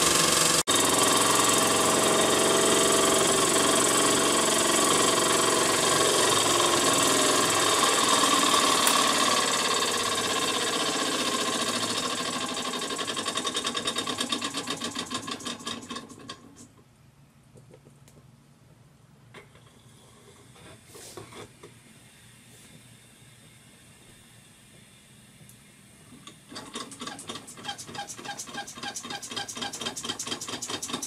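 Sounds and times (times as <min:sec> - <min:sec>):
toy steam engine running: 0:00.0 - 0:16.3, 0:26.6 - 0:31.0.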